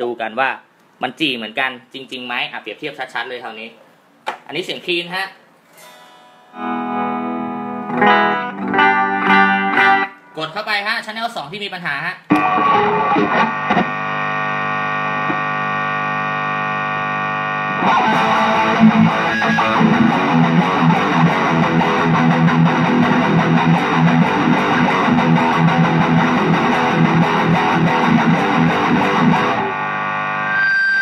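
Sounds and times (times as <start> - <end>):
distorted electric guitar: 5.8 - 10.4, 12.3 - 31.0
steady buzzing hum: 12.4 - 31.0.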